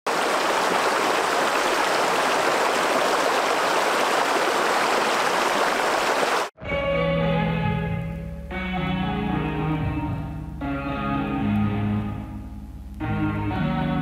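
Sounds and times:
rocky creek flowing: 0:00.1 - 0:06.5.

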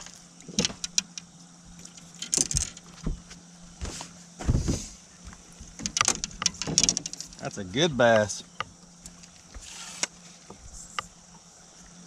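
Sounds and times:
steady low hum: 0:00.0 - 0:12.0
clicks and knocks: 0:00.5 - 0:01.2, 0:05.6 - 0:07.4.

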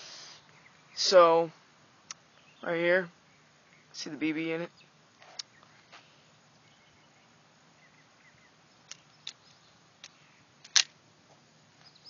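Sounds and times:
sharp loud revolver click: 0:10.7 - 0:10.9.

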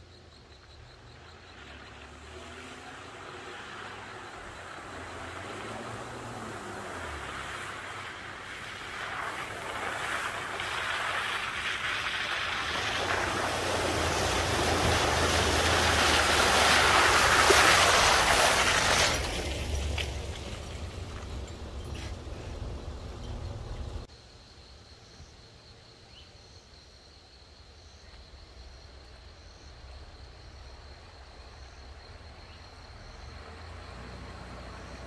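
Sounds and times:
water and mud splashing: 0:01.6 - 0:22.8
truck engine humming: 0:12.3 - 0:24.1.

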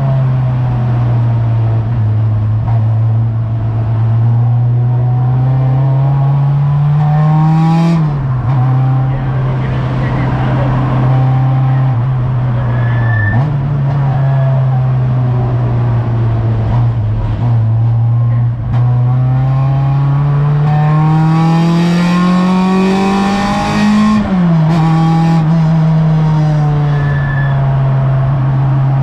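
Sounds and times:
race car engine accelerating: 0:00.0 - 0:29.0.

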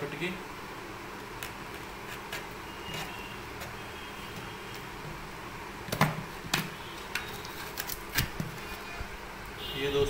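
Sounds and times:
foil seal crackling and tearing: 0:07.2 - 0:08.4.

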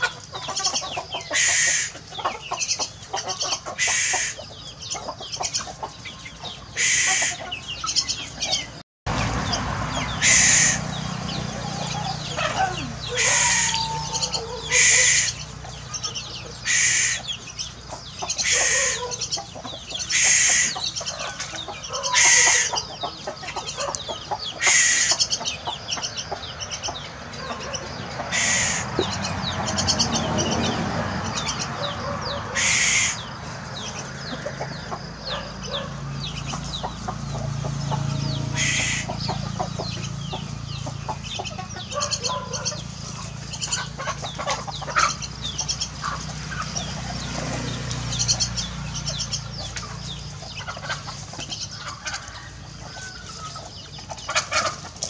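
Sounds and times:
chickens clucking: 0:00.0 - 0:55.0
bird squawking harshly: 0:06.8 - 0:07.4, 0:12.4 - 0:15.4, 0:16.6 - 0:17.2, 0:18.4 - 0:19.0, 0:20.1 - 0:20.8, 0:22.1 - 0:22.7, 0:24.6 - 0:25.2, 0:28.3 - 0:28.9, 0:32.6 - 0:33.2, 0:38.6 - 0:39.1.

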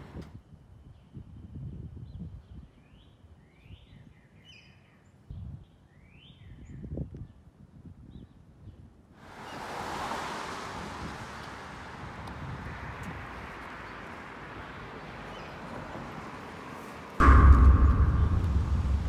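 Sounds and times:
wind rumble on microphone: 0:00.0 - 0:03.0, 0:05.3 - 0:05.8, 0:06.4 - 0:09.1, 0:10.8 - 0:13.6
steady street rushing noise: 0:09.2 - 0:19.0.

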